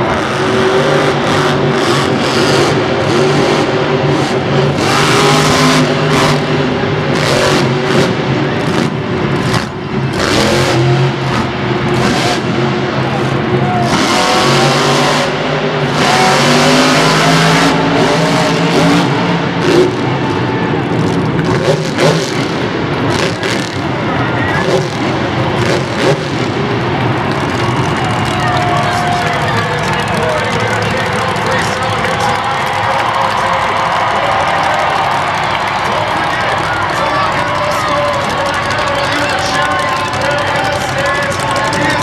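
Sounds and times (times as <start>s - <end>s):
monster truck engine revving: 0.0s - 42.0s.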